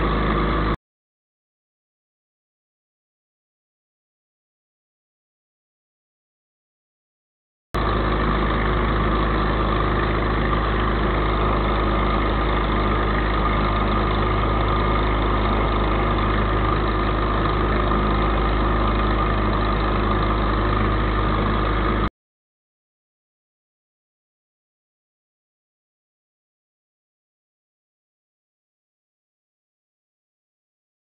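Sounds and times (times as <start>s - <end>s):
aircraft engine and propeller drone: 0.0s - 0.8s, 7.8s - 22.1s.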